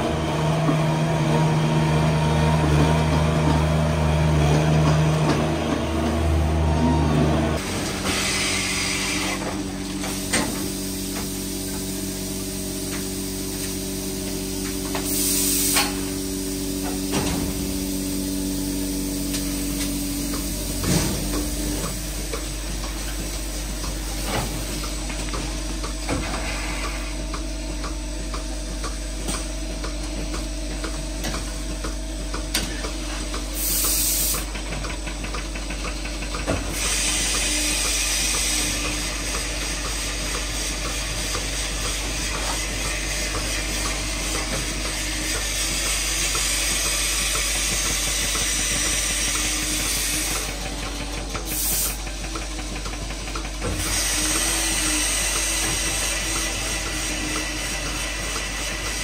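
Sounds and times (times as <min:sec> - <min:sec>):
steady mechanical hum: 0:00.0 - 0:59.0
milking robot arm hissing: 0:08.0 - 0:09.4.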